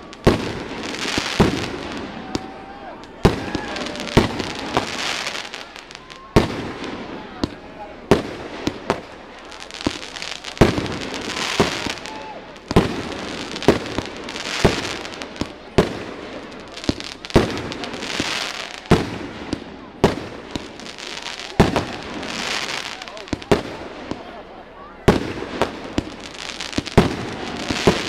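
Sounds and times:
fireworks bangs: 0:00.0 - 0:28.0
fireworks crackling and hissing: 0:00.0 - 0:28.0.

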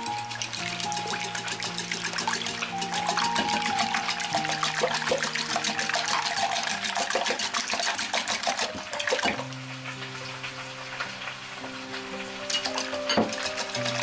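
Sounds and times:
whisk beating eggs in glass bowl: 0:00.0 - 0:09.4, 0:12.5 - 0:14.0.

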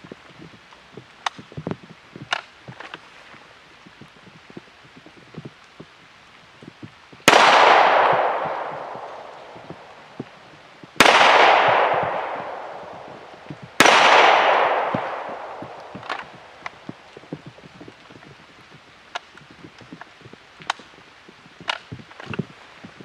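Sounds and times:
pistol shots with echo: 0:07.3 - 0:10.2, 0:11.0 - 0:16.7.

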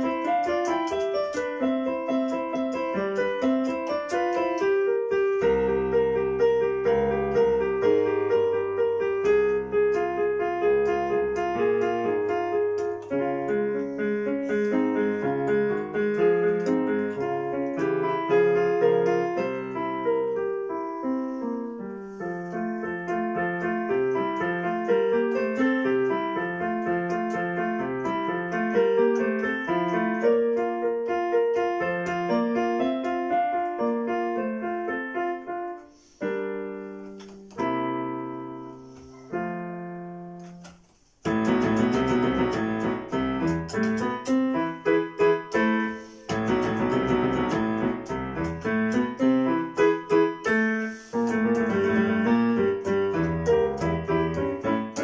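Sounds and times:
electronic keyboard piano playing: 0:00.0 - 0:55.0.

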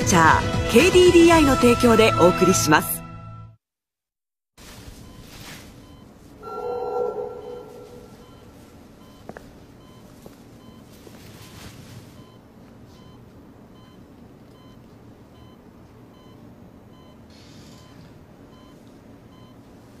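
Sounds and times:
patient monitor beeping: 0:05.1 - 0:10.9
low background hum: 0:05.6 - 0:17.2.

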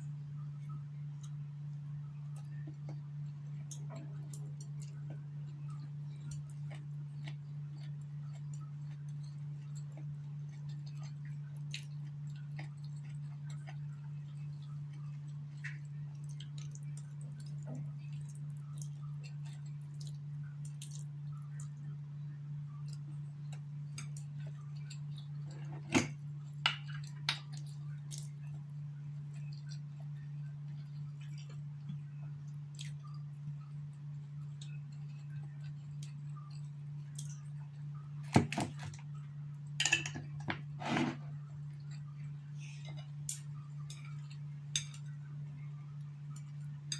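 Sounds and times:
steady low hum: 0:00.0 - 0:46.9
faint chewing: 0:02.2 - 0:21.9.

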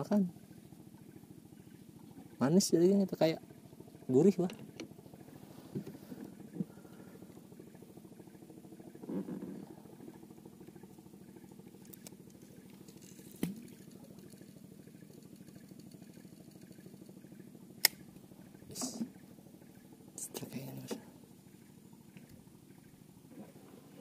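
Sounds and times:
boat engine idling: 0:00.0 - 0:24.0
sharp clicks: 0:17.8 - 0:18.0.

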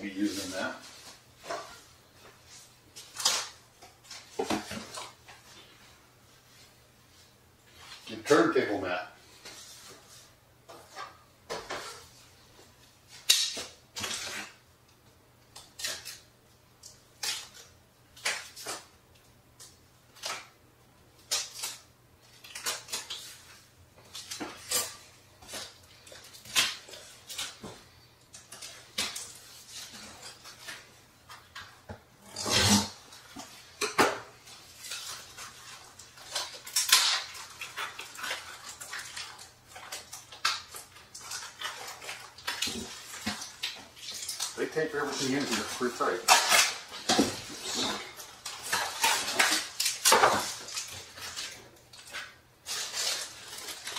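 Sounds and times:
packaging rustling and scraping: 0:21.2 - 0:53.9.

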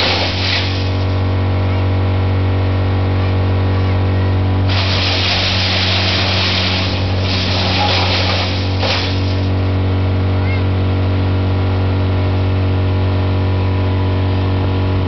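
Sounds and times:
loud rushing hiss: 0:00.0 - 0:01.2, 0:04.7 - 0:09.5
engine running with deep hum: 0:00.0 - 0:15.0.

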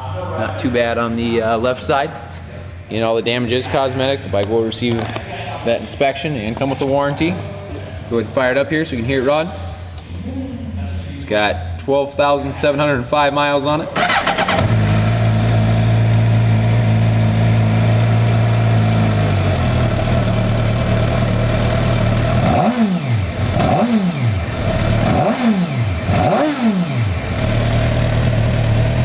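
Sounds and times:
motorcycle engine idling: 0:14.0 - 0:22.4, 0:27.1 - 0:29.0.

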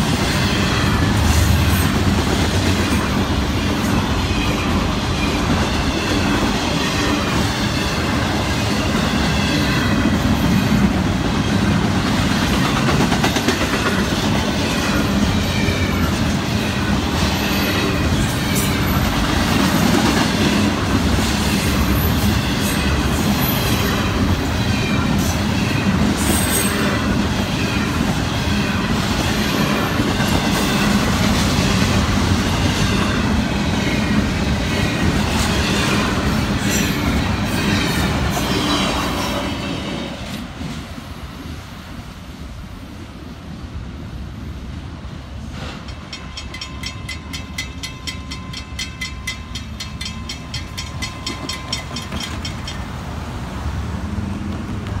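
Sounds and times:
freight train rolling past: 0:00.0 - 0:55.0
crossing bell ringing: 0:45.8 - 0:53.1.

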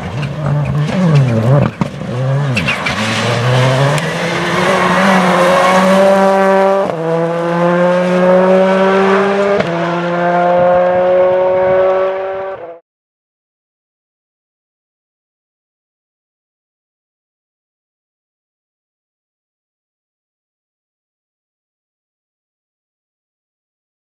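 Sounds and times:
gear upshifts: 0:00.0 - 0:12.6
rally car engine accelerating hard: 0:00.0 - 0:12.8.

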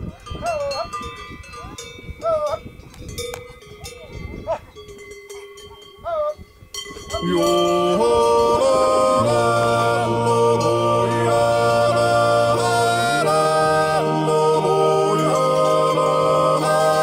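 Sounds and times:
goat bells ringing: 0:00.0 - 0:13.4
yodelled music: 0:07.2 - 0:17.0.

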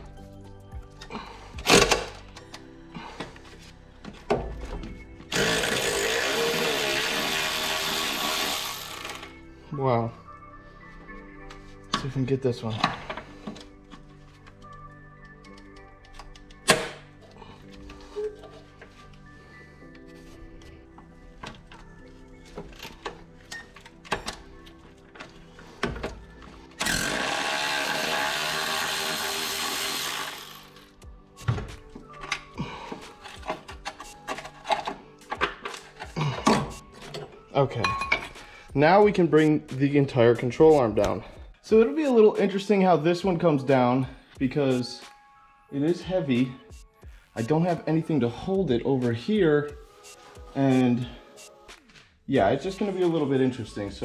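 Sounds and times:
impact wrench spinning: 0:05.3 - 0:09.3, 0:26.8 - 0:30.8
tools clicking and knocking: 0:31.4 - 0:38.4.

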